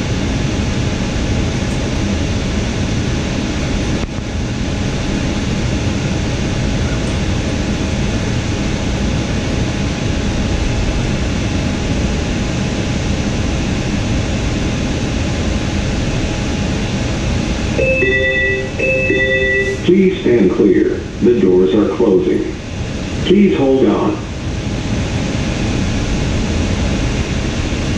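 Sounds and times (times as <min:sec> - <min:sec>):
train car ventilation hum: 0:00.0 - 0:27.9
electronic chime tones: 0:17.8 - 0:19.9.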